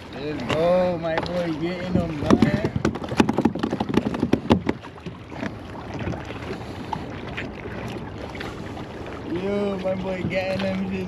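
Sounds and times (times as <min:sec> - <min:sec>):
wind on microphone: 0:01.5 - 0:06.5
clattering clicks and knocks: 0:02.3 - 0:04.8.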